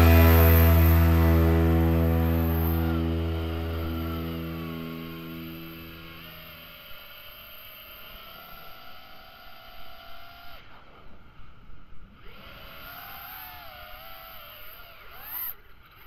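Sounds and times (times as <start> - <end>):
drone motors whining: 0.0 - 6.3.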